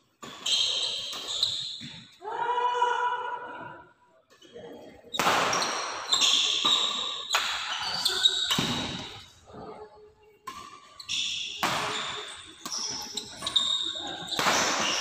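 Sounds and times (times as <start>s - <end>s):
shoes squeaking: 0.2s - 2.0s, 5.5s - 9.2s, 10.5s - 15.0s.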